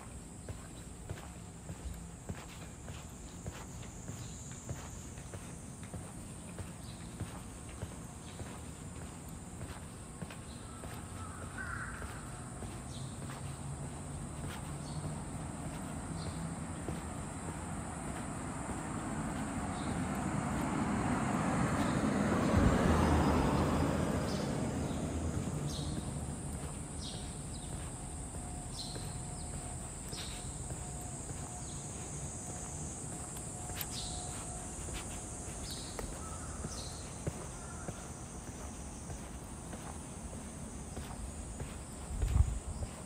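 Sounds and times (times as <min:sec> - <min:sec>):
footsteps on pavement: 0:00.0 - 0:43.0
vehicle passing by: 0:14.2 - 0:39.3.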